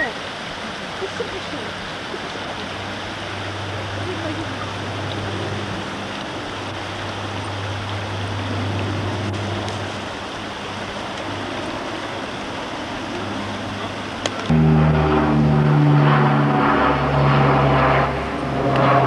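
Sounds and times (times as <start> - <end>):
stream running over stones: 0.0 - 14.5
low hum: 2.2 - 19.0.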